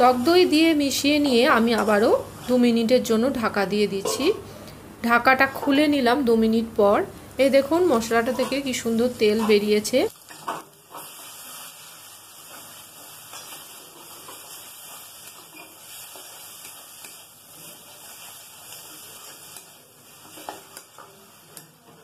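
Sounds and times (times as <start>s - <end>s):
paste sizzling in oil: 7.6s - 22.0s.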